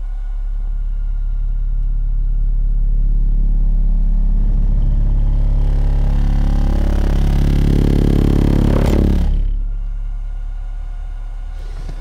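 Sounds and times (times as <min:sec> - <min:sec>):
deep subwoofer test tone hum: 0:00.0 - 0:12.0
buzzing and rattling: 0:04.0 - 0:09.8.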